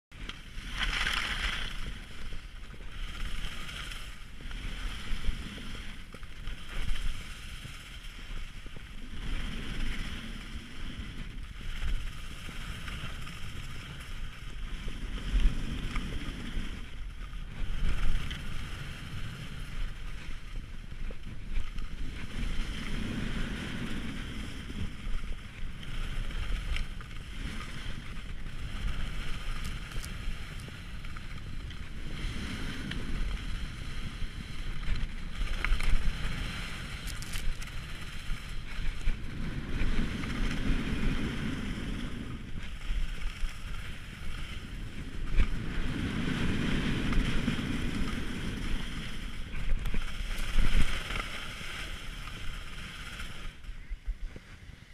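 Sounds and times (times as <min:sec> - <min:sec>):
wind on microphone: 0:00.1 - 0:54.9
skis hissing over snow: 0:00.3 - 0:54.9.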